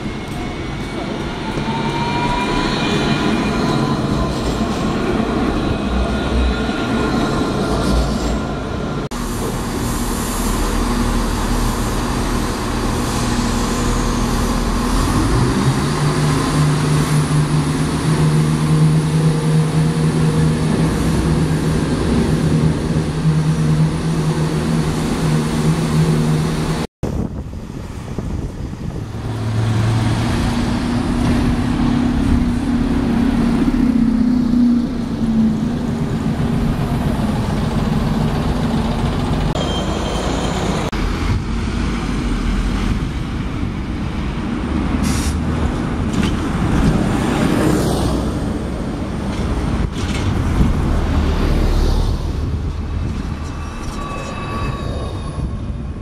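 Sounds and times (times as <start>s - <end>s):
street traffic noise: 0.0s - 56.0s
train engine drone: 0.0s - 56.0s
bus engine passing slowly: 9.0s - 39.6s.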